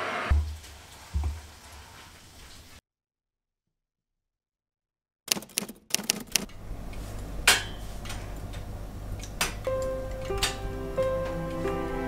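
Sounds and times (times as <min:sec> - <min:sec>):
knitting needles clicking: 0:05.3 - 0:06.5
soft music: 0:09.6 - 0:12.0.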